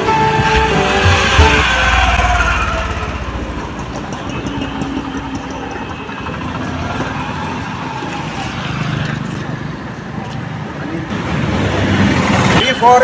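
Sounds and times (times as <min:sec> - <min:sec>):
low knocking pulse: 0:00.2 - 0:06.6.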